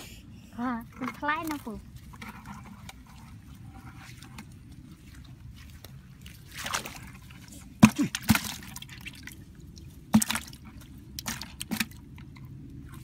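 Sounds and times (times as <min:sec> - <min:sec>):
water dripping and splashing: 0:01.1 - 0:13.0
fish slapping into bucket: 0:06.4 - 0:09.4, 0:10.1 - 0:12.1.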